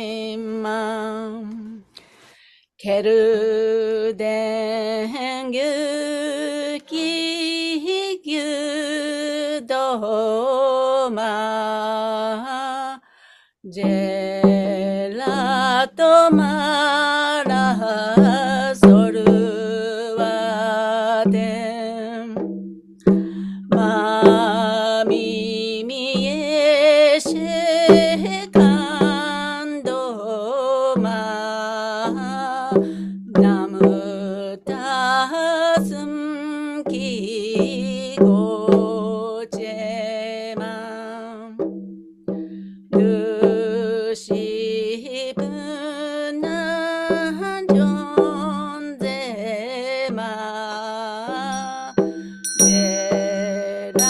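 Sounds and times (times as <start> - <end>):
hand drum beating: 13.7 - 54.0.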